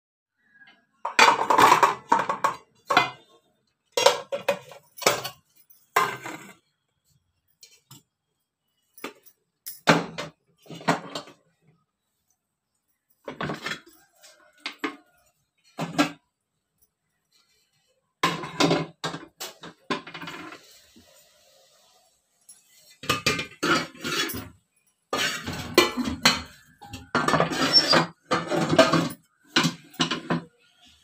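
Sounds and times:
metal pots and pans clattering: 0:01.0 - 0:06.6, 0:09.0 - 0:11.4, 0:13.2 - 0:16.2, 0:18.2 - 0:20.7, 0:22.5 - 0:31.0.

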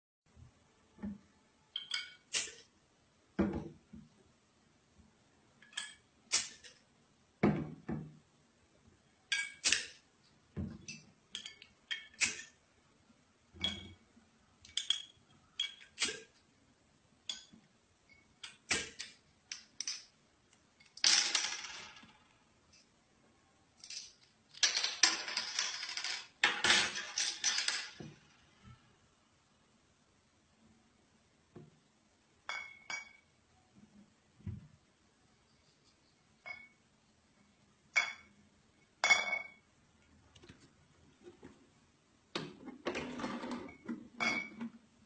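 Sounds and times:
hard objects clinking and knocking: 0:14.7 - 0:16.1, 0:23.8 - 0:28.2.

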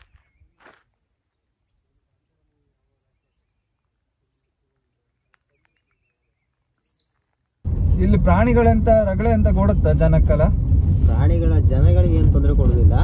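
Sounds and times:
soft footsteps: 0:00.0 - 0:01.1
faint outdoor hiss: 0:00.1 - 0:07.7.

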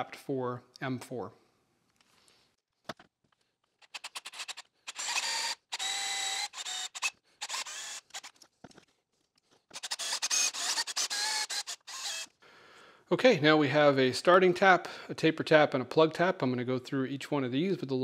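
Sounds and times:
power drill whining: 0:03.8 - 0:08.4, 0:09.7 - 0:12.4.

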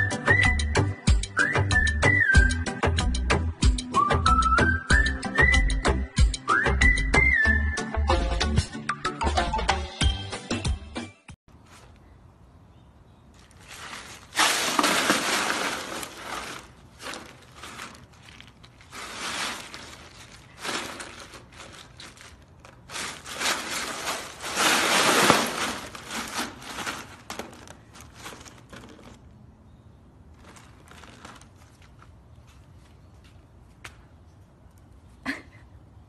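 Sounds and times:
ice cubes crunching and clattering: 0:13.4 - 0:29.2.

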